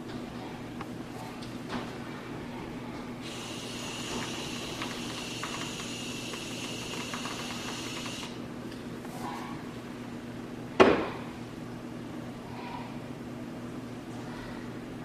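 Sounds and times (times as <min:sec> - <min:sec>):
cream dispenser hissing: 0:03.2 - 0:08.4.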